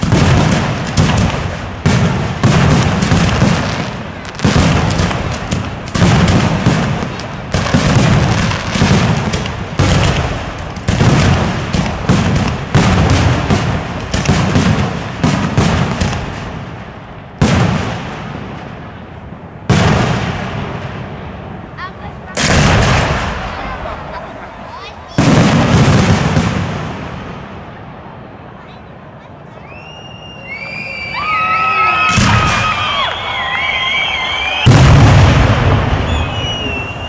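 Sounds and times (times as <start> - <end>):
firework shells bursting: 32.0 - 37.0.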